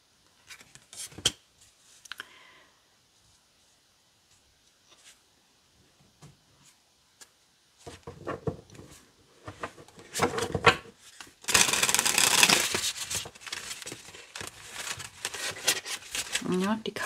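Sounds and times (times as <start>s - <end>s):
cards shuffled rapidly: 11.2s - 16.8s
cards clicking: 11.5s - 12.8s.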